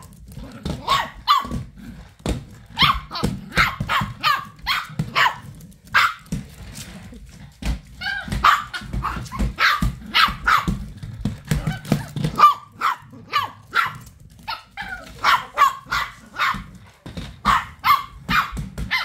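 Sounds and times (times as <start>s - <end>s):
small dog barking: 0.8s - 1.6s, 2.8s - 6.2s, 8.0s - 10.8s, 12.3s - 16.7s, 17.4s - 19.0s.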